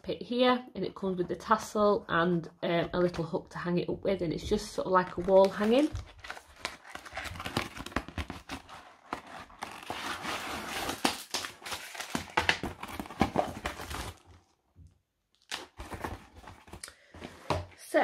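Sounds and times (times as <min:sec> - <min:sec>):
cardboard box opening: 0:05.1 - 0:14.4, 0:15.5 - 0:16.8
plastic bags rustling: 0:05.3 - 0:14.5.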